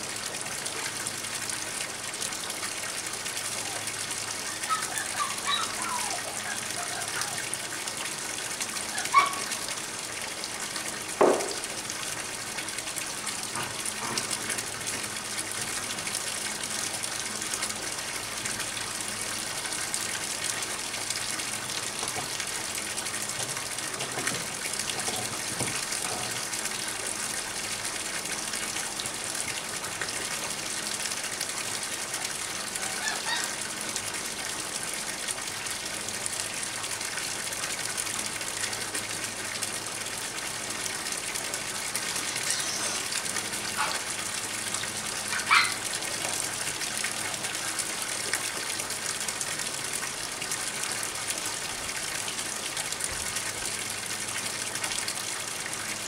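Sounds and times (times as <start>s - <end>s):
water pouring into a pond: 0.0s - 56.0s.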